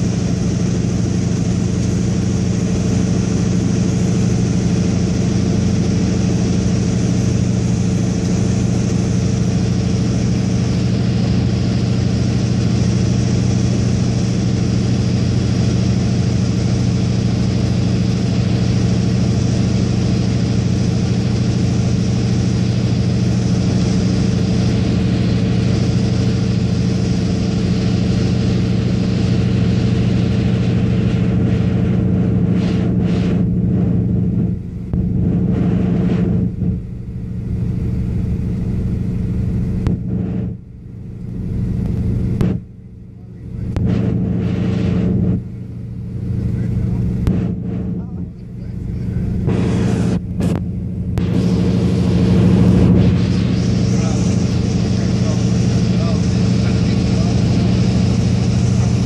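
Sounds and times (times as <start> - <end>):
aircraft engine and propeller droning: 0.0 - 59.0.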